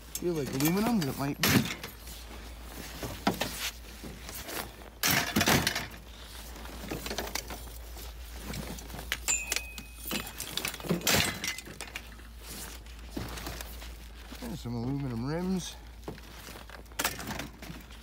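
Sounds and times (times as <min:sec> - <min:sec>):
metal bicycle parts clattering: 0:00.0 - 0:02.2, 0:04.9 - 0:14.0.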